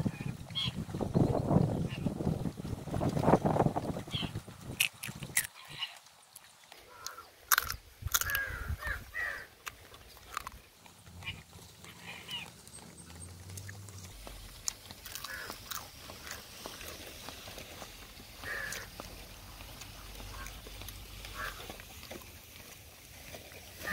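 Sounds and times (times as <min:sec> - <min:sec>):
slurping and lip-smacking: 0:04.8 - 0:06.0
crab shell cracking: 0:04.8 - 0:08.5, 0:09.6 - 0:11.0.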